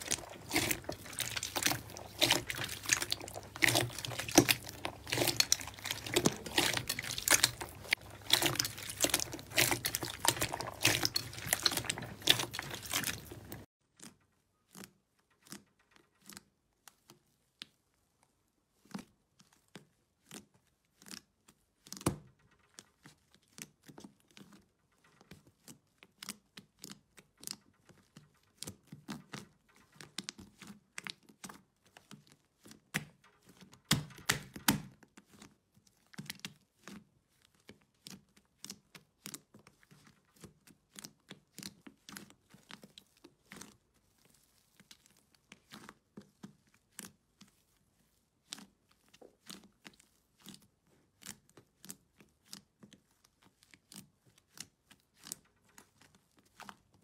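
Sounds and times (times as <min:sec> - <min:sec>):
slime squishes and pops: 0:00.0 - 0:13.6, 0:33.8 - 0:35.0
slime squelching and crackling: 0:00.0 - 0:57.0.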